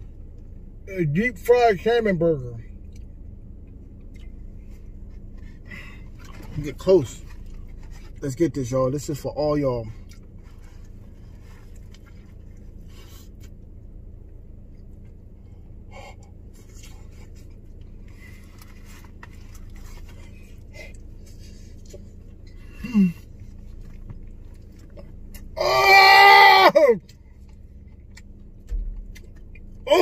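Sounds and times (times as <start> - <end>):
steady low hum: 0.0 - 25.8, 26.8 - 30.0
man eating: 2.8 - 8.2, 14.7 - 30.0.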